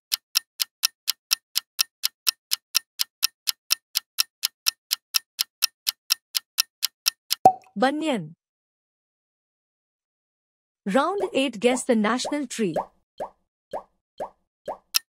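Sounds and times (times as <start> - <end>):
clock ticking quickly: 0.0 - 7.4, 14.7 - 15.0.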